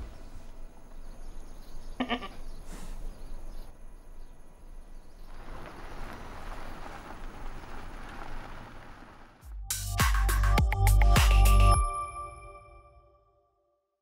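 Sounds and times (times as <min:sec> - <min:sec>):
goat bleating: 0:02.0 - 0:02.4.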